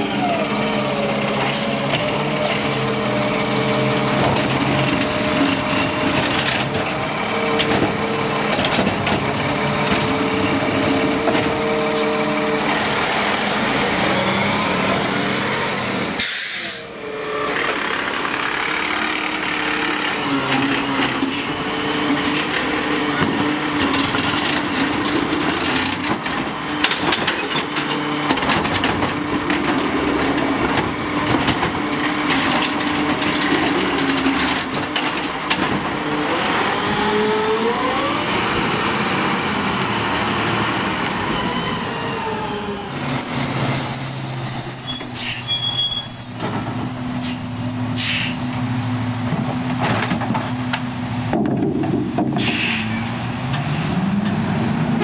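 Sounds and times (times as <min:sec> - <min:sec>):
garbage truck diesel engine revving: 0:00.0 - 0:44.8, 0:48.4 - 0:55.0
clanks and knocks: 0:04.0 - 0:11.6, 0:22.5 - 0:36.1, 0:49.2 - 0:52.6.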